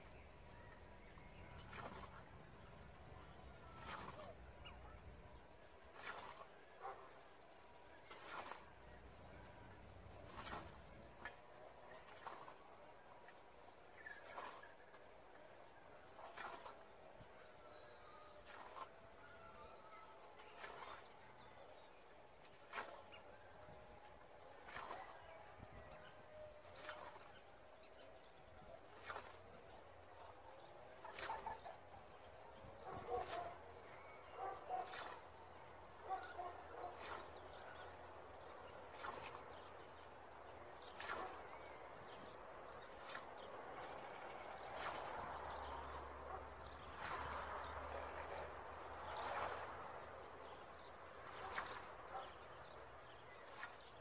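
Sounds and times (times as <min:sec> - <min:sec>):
scythe swishing through grass: 0:08.2 - 0:08.6.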